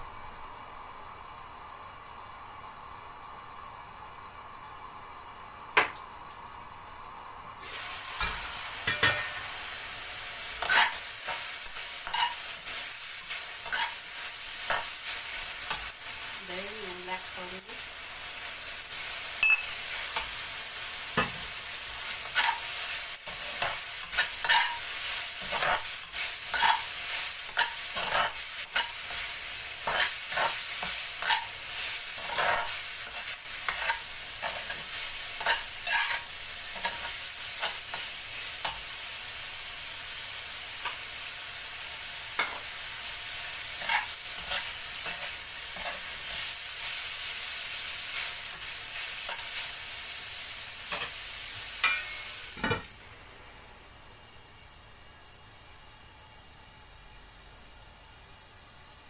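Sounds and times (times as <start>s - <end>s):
meat sizzling in hot oil: 6.1s - 53.3s
metal spatula scraping wok: 10.5s - 12.8s, 13.5s - 14.0s, 22.1s - 38.0s, 51.8s - 52.9s.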